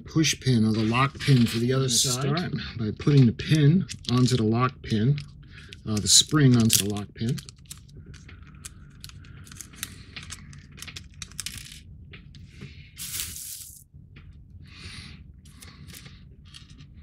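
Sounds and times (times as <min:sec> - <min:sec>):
steady low hum: 0:00.0 - 0:17.0
light clicks and small rattles: 0:05.1 - 0:12.4.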